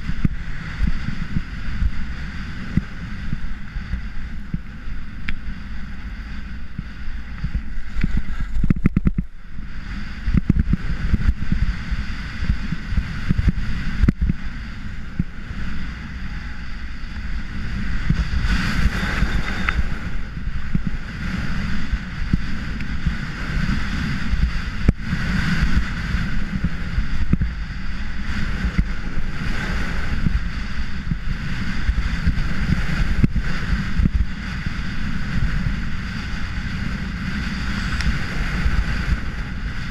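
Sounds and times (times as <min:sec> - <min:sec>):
wind rumbling over microphone: 0:00.0 - 0:39.9
ski edges scraping snow: 0:17.6 - 0:20.2.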